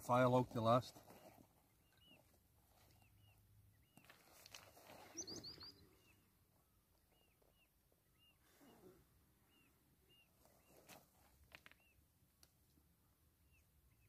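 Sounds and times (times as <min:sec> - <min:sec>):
soft rustle: 0:00.2 - 0:06.0, 0:10.2 - 0:12.0
faint bird chirps: 0:01.0 - 0:11.0, 0:11.6 - 0:12.0.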